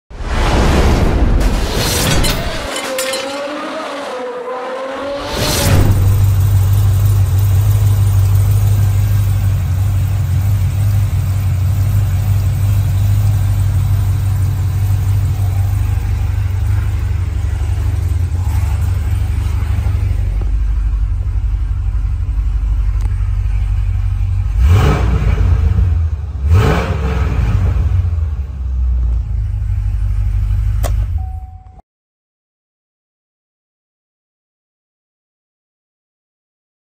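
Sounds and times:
engine revving: 3.2s - 31.0s
car engine idling: 5.7s - 26.8s, 27.4s - 31.4s.

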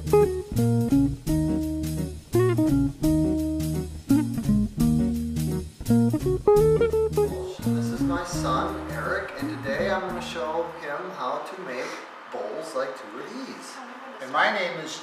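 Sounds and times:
plucked guitar tune: 0.0s - 10.5s
bass line: 0.0s - 10.8s.

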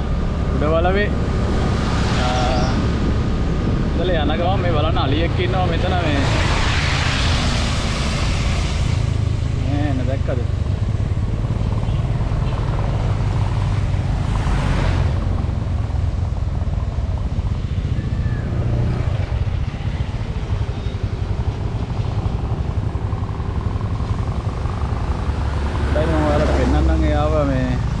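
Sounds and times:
road noise: 0.0s - 28.0s
wind over microphone: 0.0s - 28.0s
motorcycle engine running: 9.0s - 28.0s.

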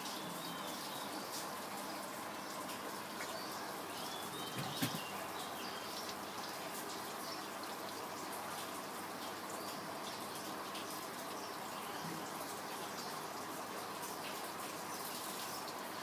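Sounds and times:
soft knock: 4.5s - 5.0s.

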